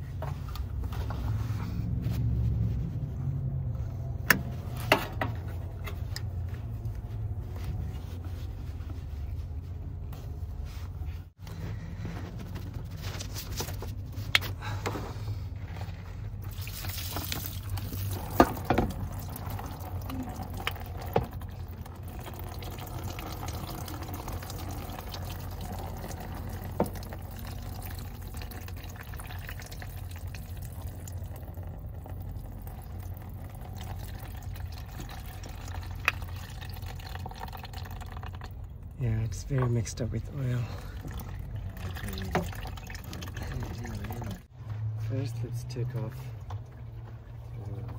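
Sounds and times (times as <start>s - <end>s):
coolant pouring into bucket: 16.4s - 39.3s, 40.5s - 44.5s.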